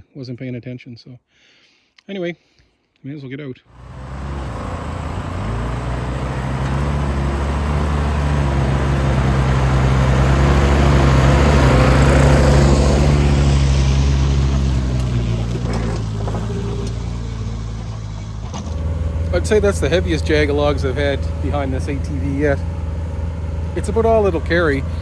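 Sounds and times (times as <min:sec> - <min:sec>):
atv engine running: 0:03.7 - 0:25.0
small gas engine: 0:03.8 - 0:25.0.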